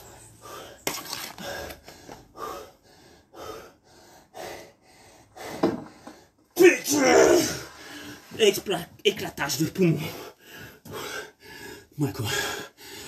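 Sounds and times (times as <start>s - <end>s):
man breathing hard through mask: 0.0s - 6.4s, 10.0s - 13.0s.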